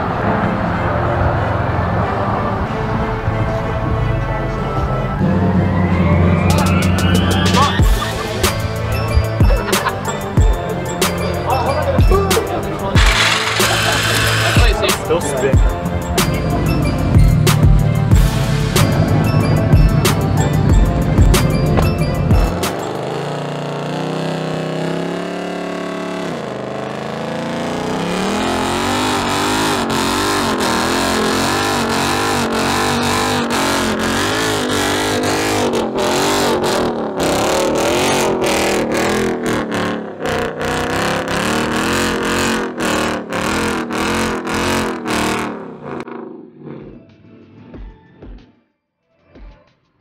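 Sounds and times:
tyres spinning: 13.0 - 15.0
car engine revving hard: 13.0 - 15.1, 22.4 - 47.0.

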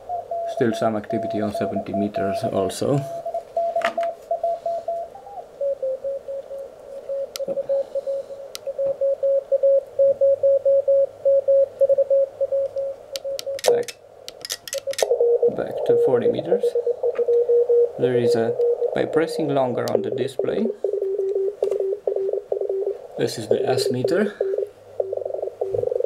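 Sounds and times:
morse code tone: 0.3 - 13.9, 14.9 - 26.0
sharp clicks: 12.6 - 15.1.

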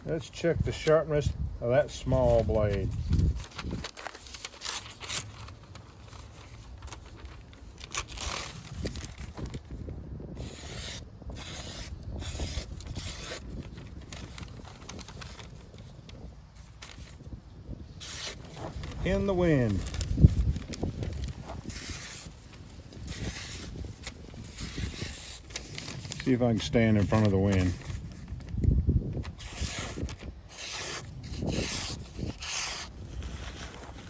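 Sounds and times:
wind rumbling on microphone: 0.0 - 34.0
knife slicing newspaper: 10.3 - 15.6, 18.0 - 27.8, 29.2 - 34.0.

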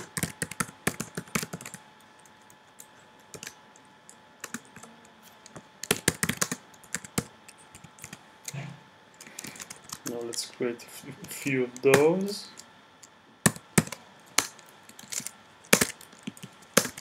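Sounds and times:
typing on a computer keyboard: 0.0 - 2.6, 3.3 - 3.6, 4.4 - 4.9, 5.8 - 8.2.

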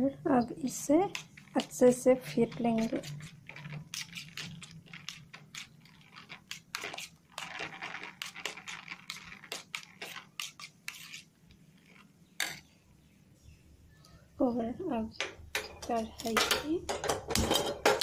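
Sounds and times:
spoon scraping metal bowl: 0.6 - 12.7.

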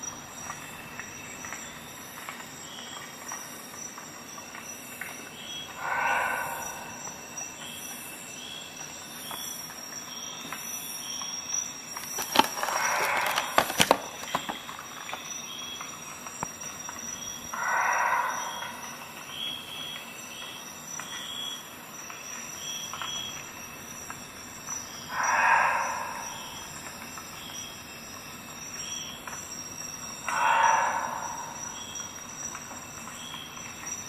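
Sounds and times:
faint high whine: 3.9 - 9.6, 11.7 - 34.0
plastic packaging crackling: 12.0 - 14.7.

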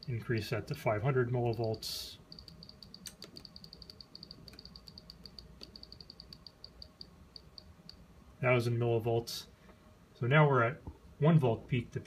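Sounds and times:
high-pitched control ticks: 1.4 - 8.0.

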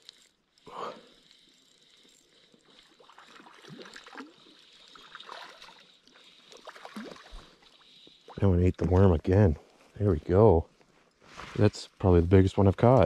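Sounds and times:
fish splashing in water: 2.6 - 9.0.

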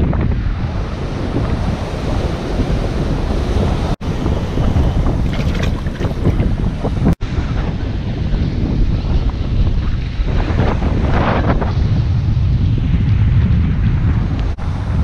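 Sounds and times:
wind buffeting microphone: 0.0 - 15.0
surf washing on beach: 0.7 - 7.1.

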